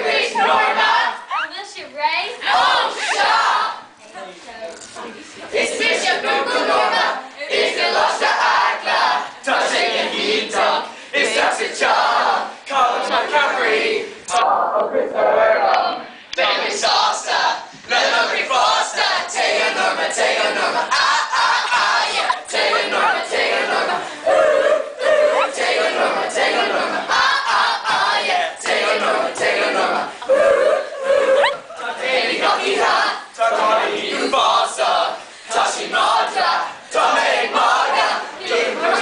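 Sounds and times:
boys singing in unison: 0.0s - 1.3s, 5.4s - 39.0s.

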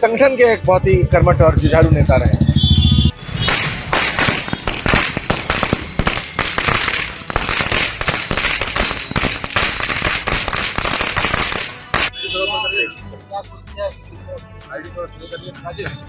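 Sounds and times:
firecrackers going off: 3.1s - 12.2s.

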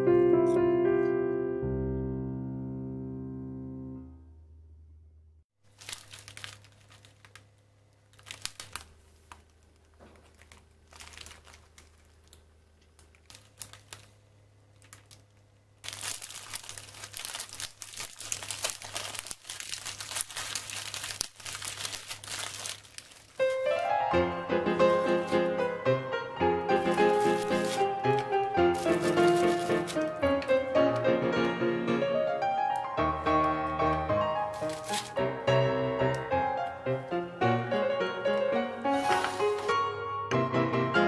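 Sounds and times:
piano music: 0.0s - 5.0s, 23.4s - 41.0s
plastic wrapper crinkling: 5.6s - 31.1s, 32.7s - 35.4s, 38.7s - 39.9s.

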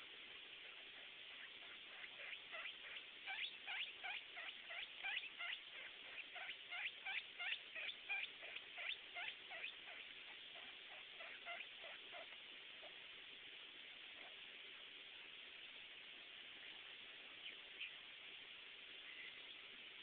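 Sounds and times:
guinea pigs squeaking: 0.4s - 13.0s.

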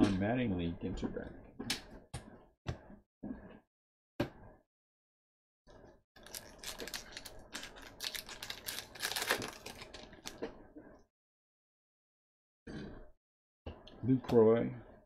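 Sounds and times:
card pack wrapper tearing and crumpling: 6.2s - 10.4s.

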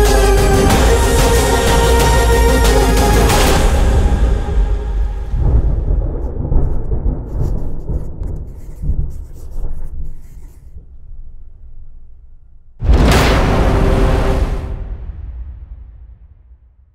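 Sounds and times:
thunder rolling: 0.5s - 9.8s, 12.8s - 16.9s
rain pattering: 5.2s - 10.2s.

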